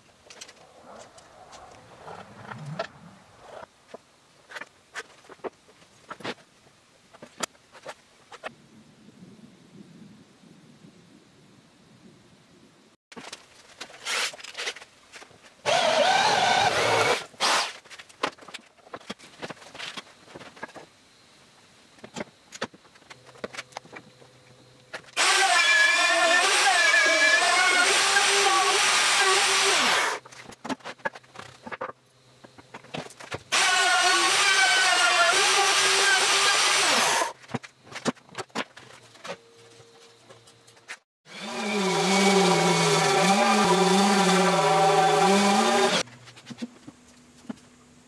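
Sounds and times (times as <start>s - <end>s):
handling knocks and rustles: 13.1s - 15.6s, 17.7s - 21.0s, 30.2s - 33.5s, 37.3s - 41.0s, 46.0s - 47.8s
router motor whine cutting wood: 15.7s - 17.6s, 25.2s - 30.2s, 33.5s - 37.3s, 41.3s - 46.0s
electric drill boring into wood: 15.7s - 17.7s, 25.2s - 30.2s, 33.5s - 37.3s, 41.3s - 46.0s.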